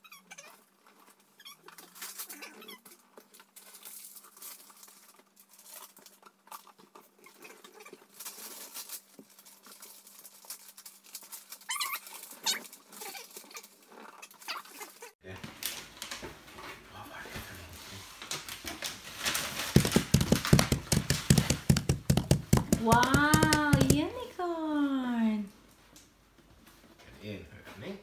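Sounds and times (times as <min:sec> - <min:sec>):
paper bags rustling and crinkling: 0:08.0 - 0:13.4, 0:15.3 - 0:24.2.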